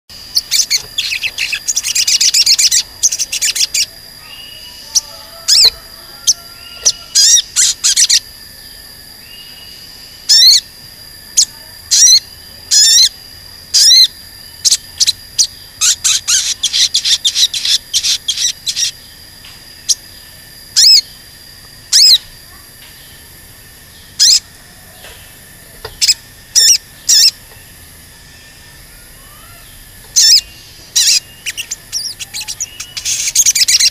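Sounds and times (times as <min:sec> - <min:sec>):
bird singing sharp chirps: 0:00.2 - 0:08.2, 0:28.3 - 0:33.9.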